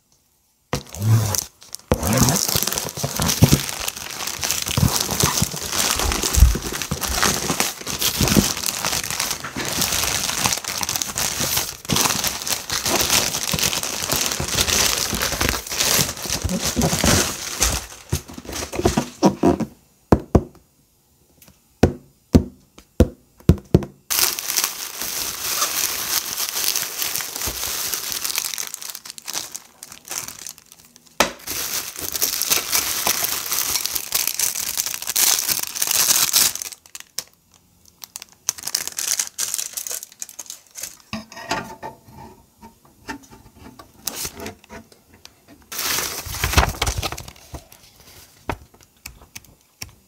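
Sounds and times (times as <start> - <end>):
cardboard box cracking and tearing: 0.8 - 19.4, 24.1 - 30.7, 31.4 - 37.1, 45.7 - 47.7
plastic packaging crinkling: 0.8 - 19.6, 24.1 - 41.1, 45.7 - 50.0
handling sounds: 0.8 - 19.7.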